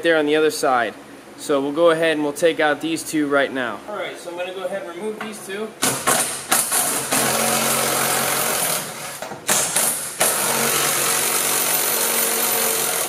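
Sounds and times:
impact driver running: 5.8 - 13.0.

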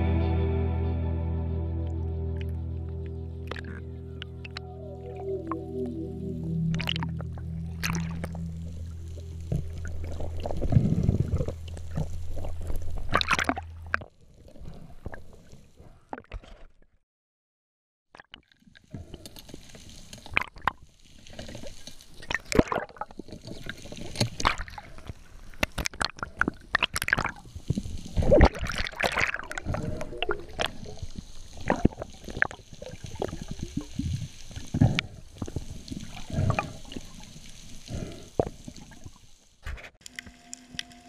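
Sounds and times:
water gurgling underwater: 3.4 - 16.3, 20.2 - 25.1, 25.7 - 39.2.

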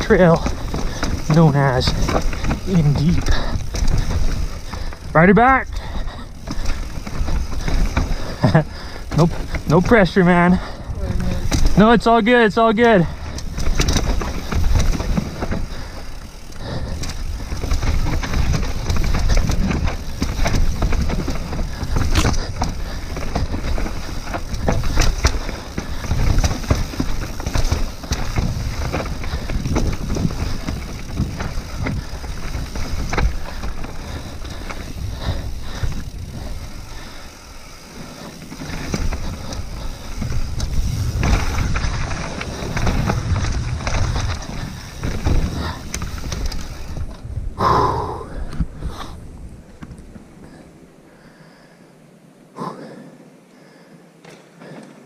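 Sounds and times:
bike clattering over bumps: 0.0 - 47.3
bike tyres on dirt and rock: 0.0 - 52.0, 53.6 - 55.0
wind on microphone: 38.7 - 49.7.

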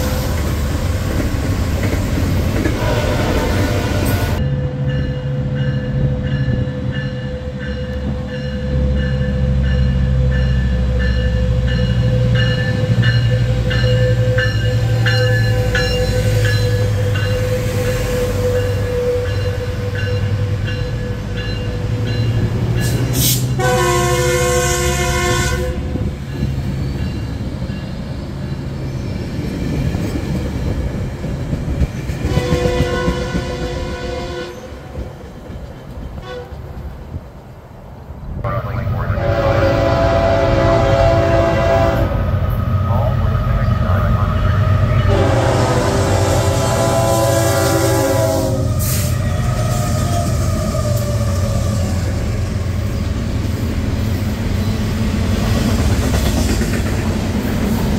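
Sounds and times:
diesel locomotive engine drone: 0.0 - 57.9
freight train rumbling past: 0.0 - 57.9
train horn: 2.6 - 4.8, 23.2 - 26.2, 32.2 - 35.0, 36.2 - 36.6, 38.6 - 42.3, 43.6 - 51.1
train bell ringing: 4.4 - 23.2, 26.2 - 29.2.

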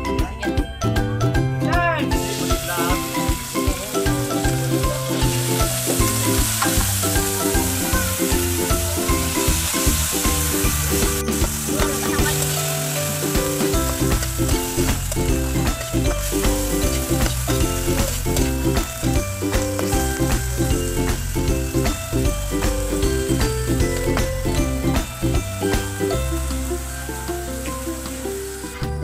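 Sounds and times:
background music with bass line: 0.0 - 29.0
shellfish sizzling in hot oil: 2.1 - 28.9
spatula stirring in a wok: 2.3 - 22.2.

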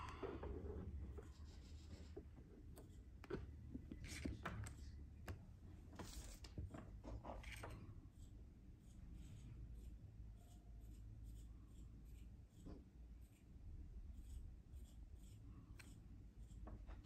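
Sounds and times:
low room hum: 0.0 - 17.0
smartphone handling scratches: 0.6 - 5.0.

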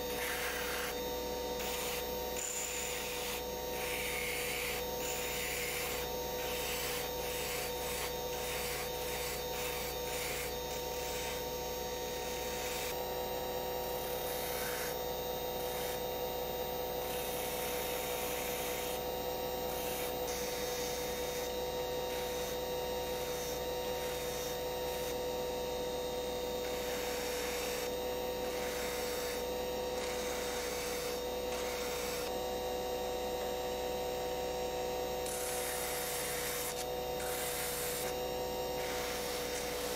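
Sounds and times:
sanding drum grinding wood: 0.0 - 11.5, 26.7 - 32.3, 35.2 - 39.9
rotary tool whine: 0.0 - 39.9.

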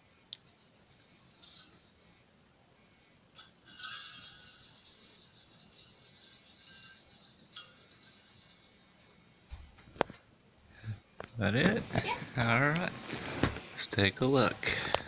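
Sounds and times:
small bells jingling: 1.0 - 10.0.

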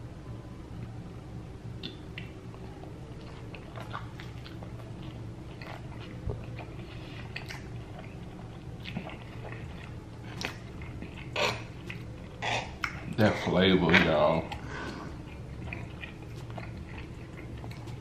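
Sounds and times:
low steady hum: 0.0 - 18.0
mouth clicks: 1.8 - 2.4
person chewing food: 1.8 - 18.0.

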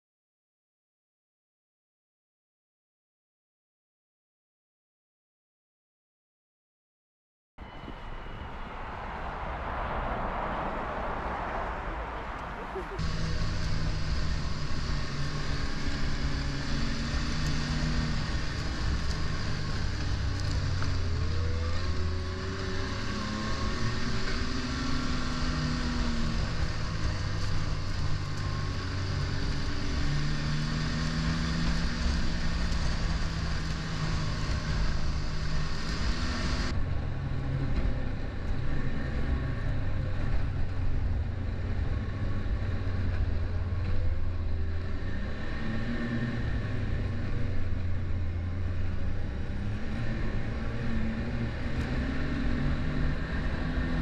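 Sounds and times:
rushing wind and track hiss: 7.9 - 43.7
snowmobile engine running: 12.5 - 54.0.

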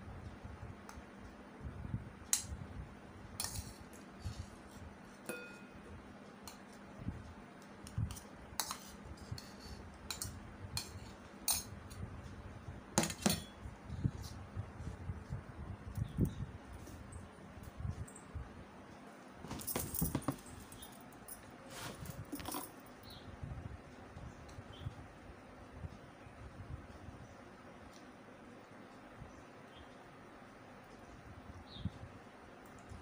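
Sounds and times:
spoon clinking on steel bowls: 3.4 - 4.0, 5.2 - 5.8, 8.6 - 11.8.

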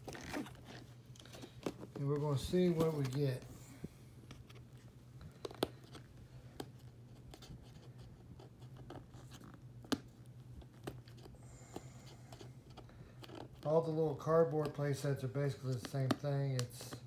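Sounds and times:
faint low hum: 0.0 - 17.0
fingers scratching cardboard: 5.4 - 13.9
small clicks and taps: 15.6 - 17.0.

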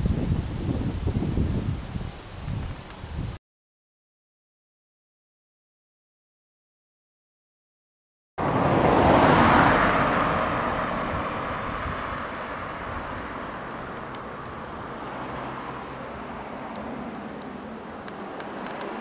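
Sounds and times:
low road noise: 0.0 - 3.4, 8.4 - 19.0
car passing by: 8.4 - 19.0.

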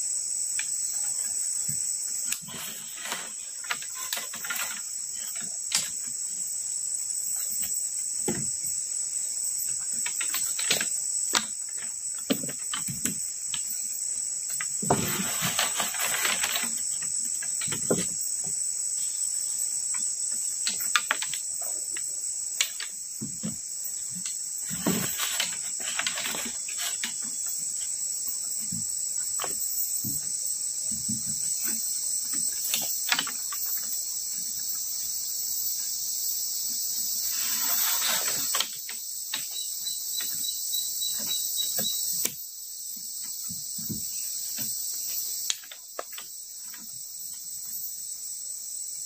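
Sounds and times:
crickets chirping: 0.0 - 49.0
rustling: 1.0 - 6.6, 7.2 - 34.4, 36.7 - 42.3
wooden poles clicking and knocking: 1.7 - 6.4, 9.6 - 18.6, 19.8 - 34.7, 37.5 - 42.4, 43.0 - 47.4.

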